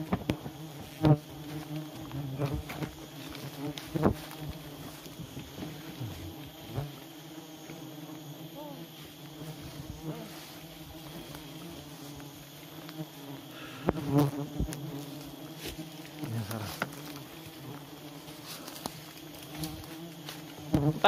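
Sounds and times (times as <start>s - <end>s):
footsteps crunching dry leaves: 0.0s - 7.2s, 8.9s - 13.3s, 14.6s - 21.0s
bees buzzing: 0.0s - 21.0s
twigs snapping: 18.6s - 20.0s.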